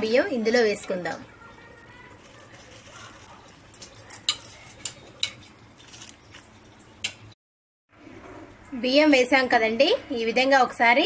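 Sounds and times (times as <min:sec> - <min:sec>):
utensil clinking against metal pot: 0:02.5 - 0:07.2.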